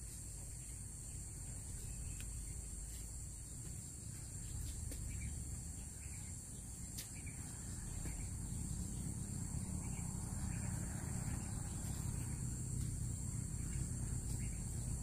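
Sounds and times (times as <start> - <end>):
insects chirring: 0.1 - 15.0
low rumble: 4.4 - 15.0.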